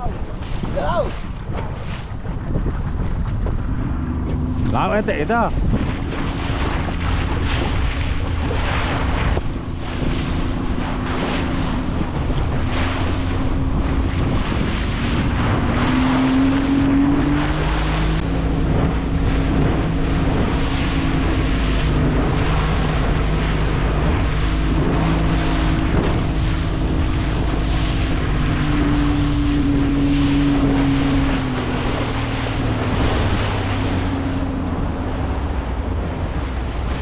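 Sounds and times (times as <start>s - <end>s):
boat engine running: 0.0s - 37.0s
water rushing past hull: 0.0s - 37.0s
wind buffeting microphone: 0.0s - 37.0s.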